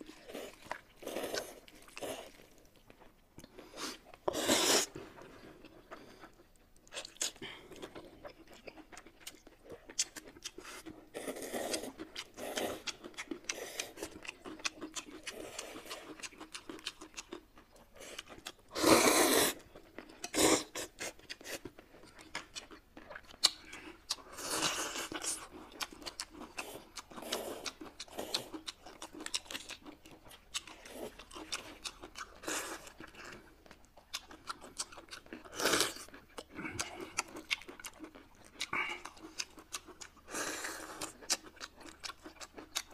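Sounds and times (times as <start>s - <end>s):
chewing with crunching bites: 0.0s - 42.9s
noodles slurped: 3.7s - 5.0s, 18.0s - 21.7s.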